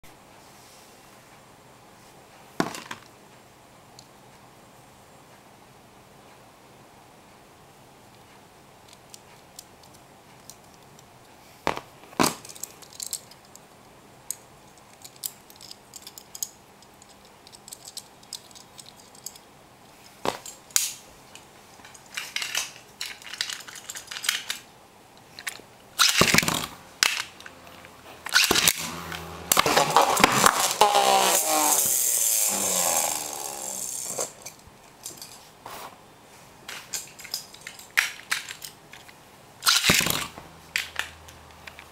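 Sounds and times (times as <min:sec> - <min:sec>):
plastic and metal parts clicking: 0:12.3 - 0:13.7, 0:14.3 - 0:19.5, 0:20.3 - 0:27.6, 0:28.2 - 0:30.8, 0:36.7 - 0:41.9
spinning tops clashing and whirring: 0:26.0 - 0:27.6, 0:28.2 - 0:34.4, 0:39.6 - 0:41.3.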